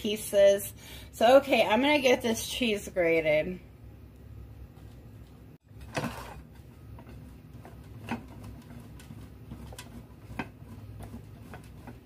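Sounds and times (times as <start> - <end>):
cheese grating on metal grater: 6.0 - 12.0.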